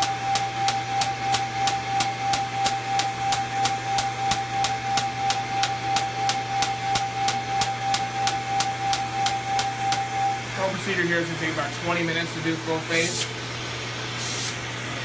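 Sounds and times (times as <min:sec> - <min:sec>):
laser pulses snapping: 0:00.0 - 0:10.1
steady high tone: 0:00.0 - 0:12.9
smoke evacuator humming: 0:00.0 - 0:15.0.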